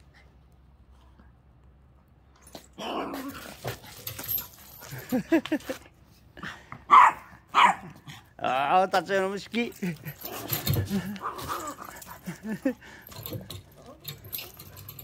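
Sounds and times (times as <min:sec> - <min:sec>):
dog barking: 0:06.9 - 0:07.9.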